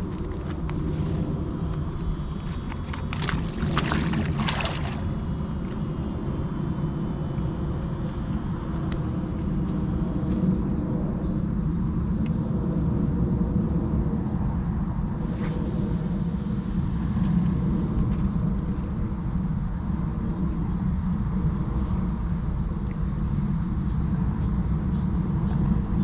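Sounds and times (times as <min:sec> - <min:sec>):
low mechanical rumble and hum: 0:00.0 - 0:26.0
water splashing: 0:02.6 - 0:05.8.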